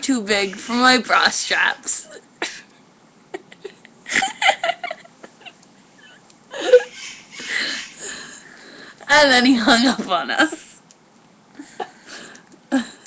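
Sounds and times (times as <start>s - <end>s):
girls laughing: 3.3s - 8.1s.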